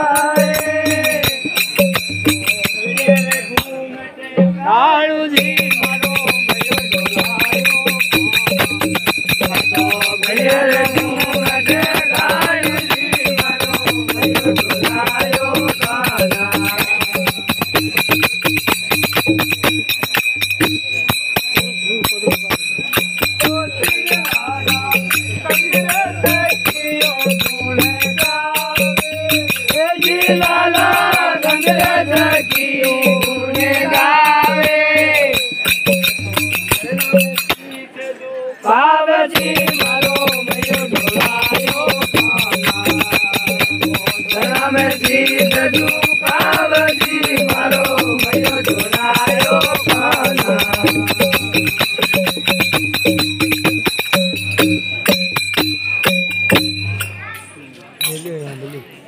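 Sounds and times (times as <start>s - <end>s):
steady drum beat: 0.0s - 3.7s, 4.4s - 37.6s, 39.2s - 57.2s
person singing wavering melody: 0.0s - 19.4s, 20.6s - 58.2s
high ringing tone: 0.0s - 58.4s
jingling and rattling: 39.4s - 58.6s.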